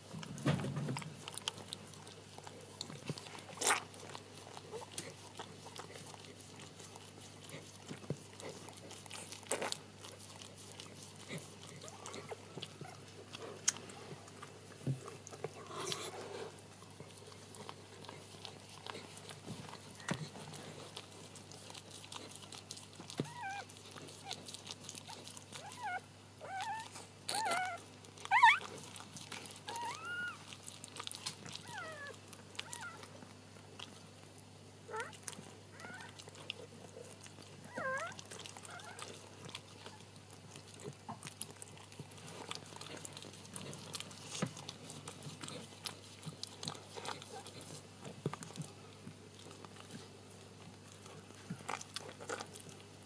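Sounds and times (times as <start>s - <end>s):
dog licking puppy: 0.0s - 53.0s
puppy squeaking whimpers: 23.2s - 23.7s, 25.6s - 28.7s, 29.7s - 30.5s, 31.6s - 33.1s, 34.9s - 36.2s, 37.7s - 39.0s.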